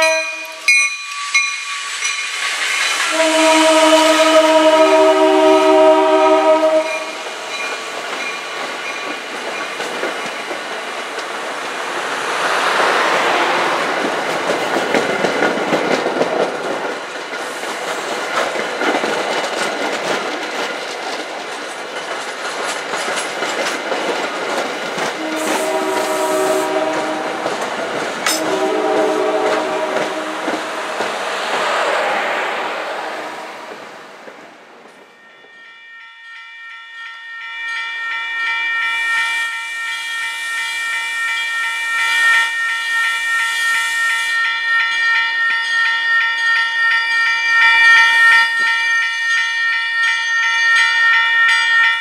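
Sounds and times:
train coaches clattering on rails: 0.0s - 36.3s, 36.9s - 52.0s
train air horn chord: 3.1s - 7.2s, 25.2s - 27.6s, 28.3s - 34.0s.

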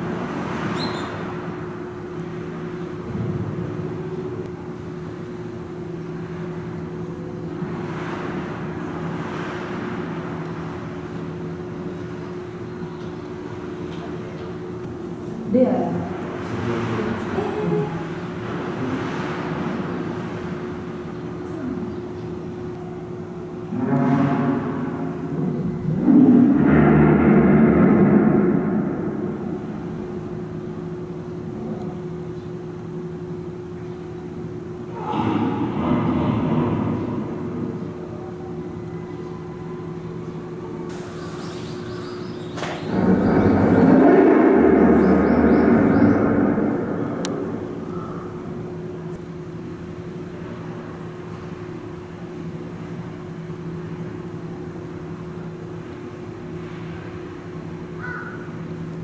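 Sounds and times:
steady hum: 0.0s - 59.0s
loud noisy hippo sound: 23.7s - 30.1s, 34.9s - 38.0s, 42.6s - 48.7s.

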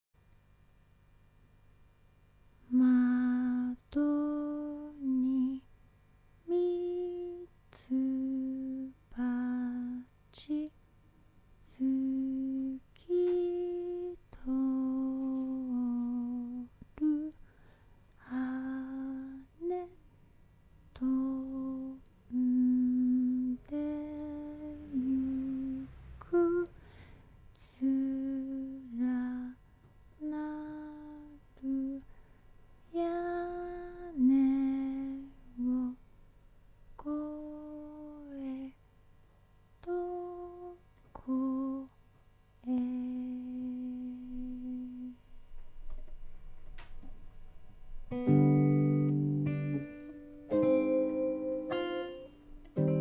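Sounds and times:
woman humming: 2.7s - 5.7s, 21.0s - 26.7s, 42.6s - 45.3s.

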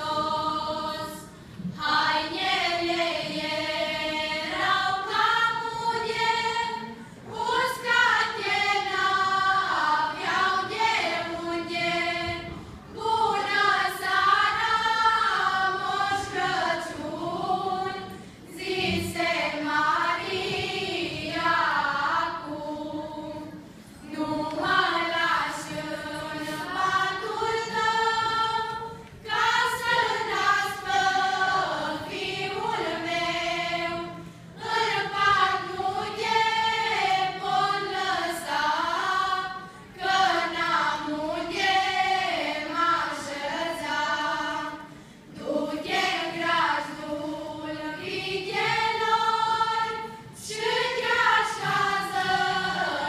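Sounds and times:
choir of women and children singing: 0.0s - 53.0s.

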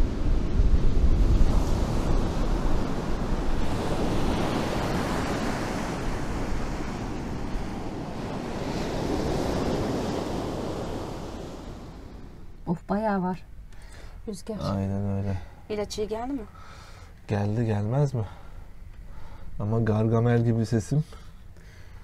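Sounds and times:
surf washing up beach: 0.0s - 12.6s
wind buffeting microphone: 0.0s - 12.6s.

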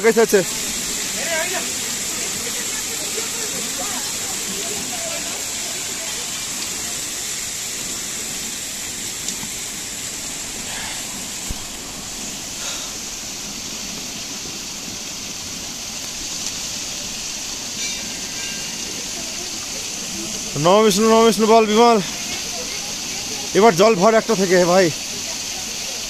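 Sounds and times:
water pouring and splashing: 0.0s - 26.0s.

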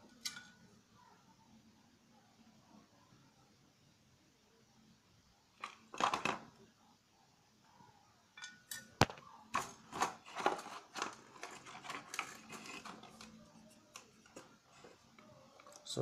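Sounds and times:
plastic parts clicking and knocking: 5.6s - 6.6s, 8.4s - 15.9s.

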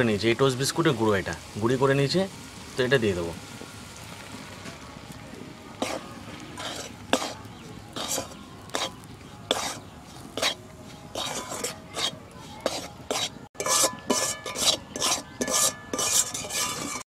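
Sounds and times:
spatula scraping metal pan: 5.8s - 17.0s.

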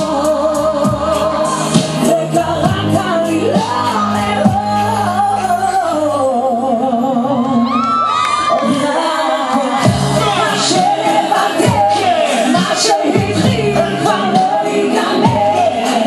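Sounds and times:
instrumental music with beat: 0.0s - 5.7s, 9.8s - 16.0s.

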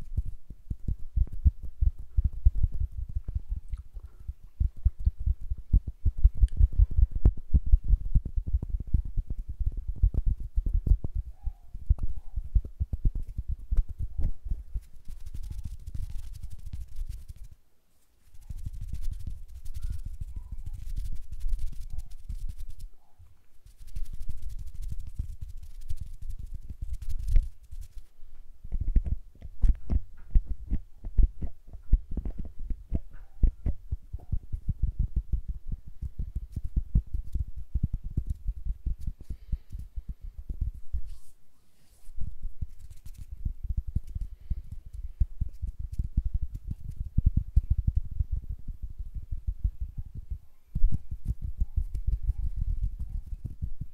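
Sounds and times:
soft low thuds of air: 0.0s - 14.9s
fingers rubbing microphone: 0.0s - 17.6s, 18.2s - 22.9s, 23.6s - 48.5s, 49.1s - 53.9s
fingertips tapping microphone: 0.0s - 53.9s.

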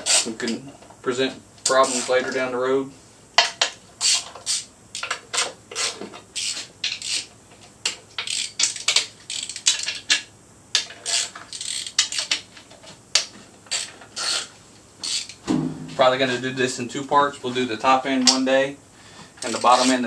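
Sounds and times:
socket ratchet clicking: 8.2s - 10.2s, 11.1s - 12.4s, 15.0s - 15.4s.

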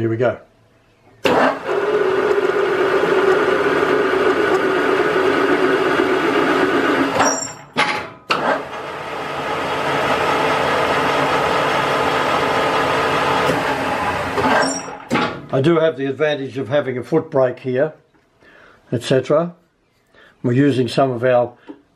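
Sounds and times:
metal lathe running: 1.3s - 7.6s, 8.4s - 15.0s
lathe tool cutting steel thread: 1.3s - 7.7s, 8.3s - 15.2s.

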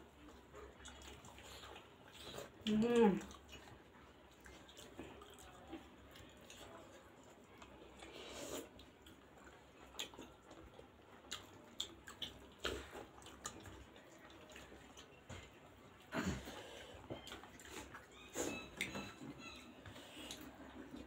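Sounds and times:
people chewing: 0.0s - 21.0s
slurp from a spoon: 8.1s - 8.8s.

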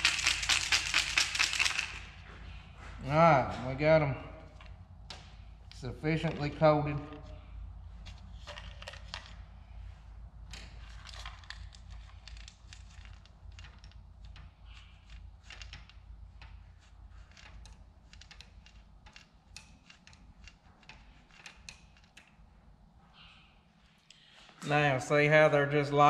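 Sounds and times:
seeds clicking and rattling: 0.0s - 2.1s
low steady hum: 0.0s - 26.0s.

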